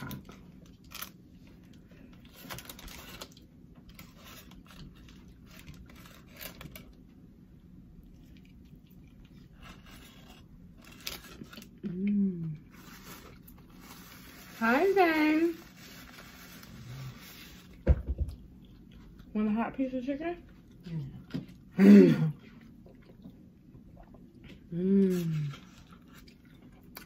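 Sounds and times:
chewing and crunching food: 0:07.8 - 0:14.6, 0:15.7 - 0:19.4, 0:20.4 - 0:27.0
person humming: 0:24.7 - 0:25.5.

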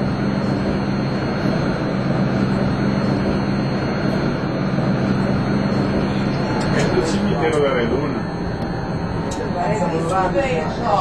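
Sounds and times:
low steady hum: 0:00.0 - 0:11.0
tram running: 0:00.0 - 0:11.0.

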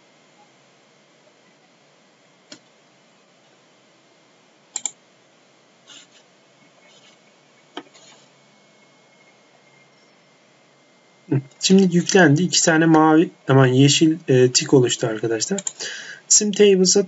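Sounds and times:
low room hiss: 0:00.0 - 0:17.0
computer mouse clicks: 0:04.7 - 0:05.0, 0:15.6 - 0:15.8.

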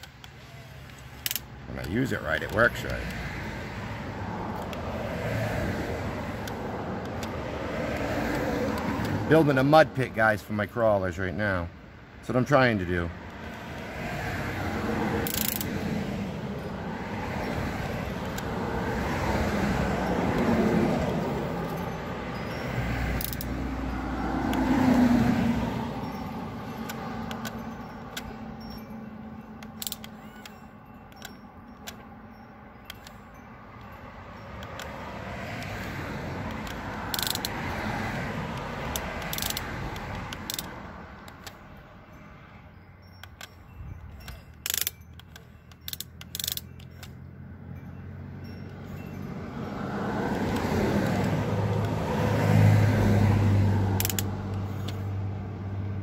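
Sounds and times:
gears clicking: 0:00.0 - 0:03.2, 0:15.2 - 0:15.8, 0:23.2 - 0:23.5, 0:29.6 - 0:32.1, 0:36.5 - 0:37.8, 0:38.5 - 0:41.6, 0:43.2 - 0:47.2, 0:54.0 - 0:55.0
toy excavator motors whirring: 0:00.0 - 0:03.7, 0:06.1 - 0:10.3, 0:12.4 - 0:41.8, 0:42.4 - 0:47.3, 0:53.8 - 0:55.2
passing road traffic: 0:00.0 - 0:56.0.

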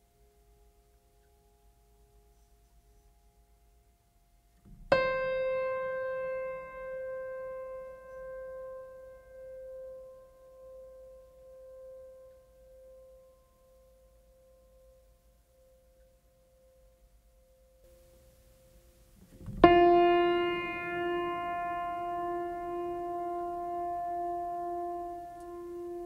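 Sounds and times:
piano note ringing: 0:04.6 - 0:13.2, 0:17.9 - 0:26.0.

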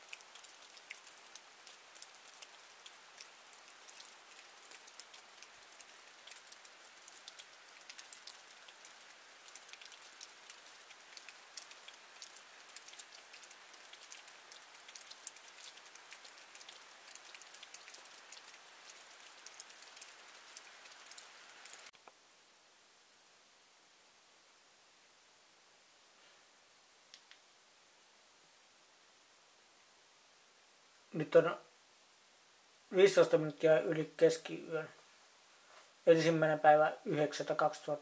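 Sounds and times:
rain on a hard surface: 0:00.0 - 0:38.0.

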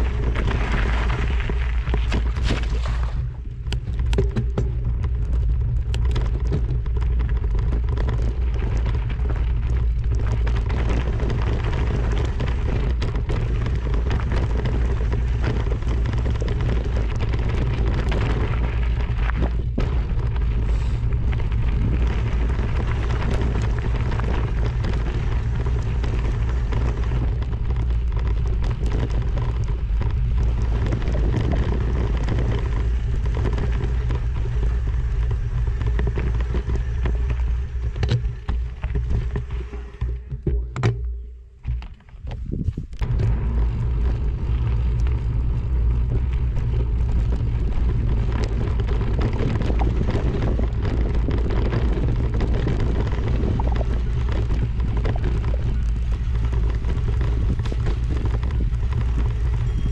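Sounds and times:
wind buffeting microphone: 0:41.7 - 0:59.9.

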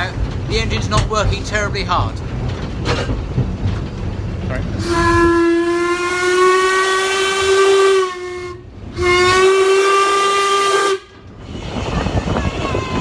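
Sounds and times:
steam locomotive whistle blasts: 0:04.8 - 0:11.2.

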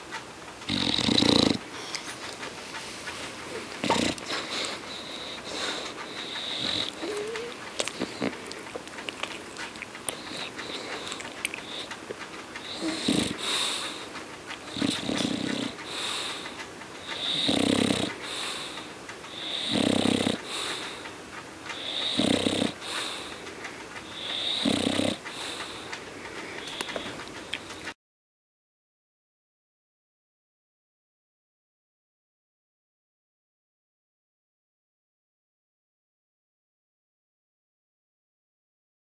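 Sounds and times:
dog snoring: 0:00.6 - 0:02.4, 0:03.5 - 0:08.6, 0:10.0 - 0:11.9, 0:12.6 - 0:21.0, 0:21.7 - 0:23.4, 0:24.0 - 0:25.9.

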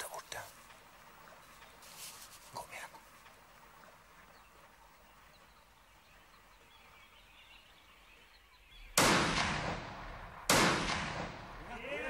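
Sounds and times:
faint bird chirps: 0:00.0 - 0:09.0
loud rifle shot: 0:08.9 - 0:11.7.

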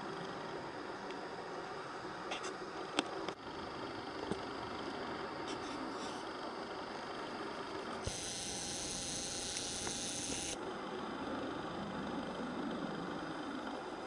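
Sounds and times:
steady background hum: 0:00.0 - 0:14.0
camera click: 0:08.0 - 0:10.6
camera zoom motor whirring: 0:08.0 - 0:10.6.

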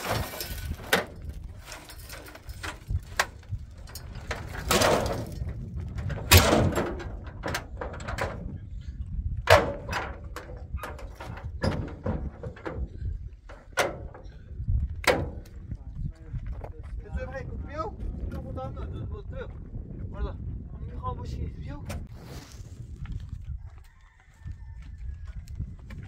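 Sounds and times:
metal latches rattling: 0:00.0 - 0:08.6, 0:09.5 - 0:14.4, 0:15.0 - 0:15.4
tailgate banging shut: 0:06.2 - 0:08.4.

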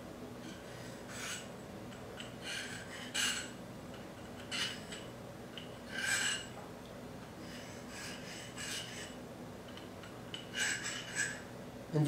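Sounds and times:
sharpening rod scraping saw blade: 0:05.9 - 0:06.5.

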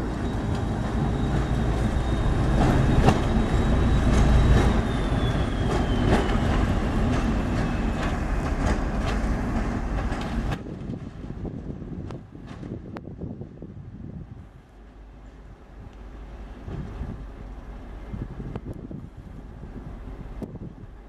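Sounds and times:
locomotive diesel engines working hard: 0:00.0 - 0:10.6
wheels clicking over rail joints: 0:00.0 - 0:13.1
wind noise: 0:00.0 - 0:21.0.

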